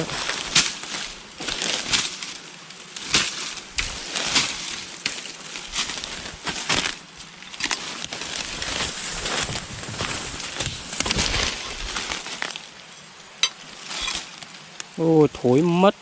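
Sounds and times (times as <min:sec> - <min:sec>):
sharp cracks: 0:00.0 - 0:07.0
leaves and twigs rustling: 0:00.0 - 0:15.6.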